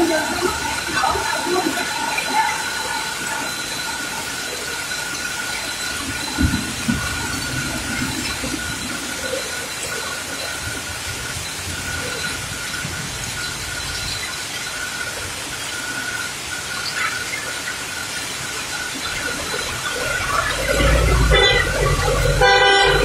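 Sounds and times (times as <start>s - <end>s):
heavy rain pouring: 0.0s - 23.0s.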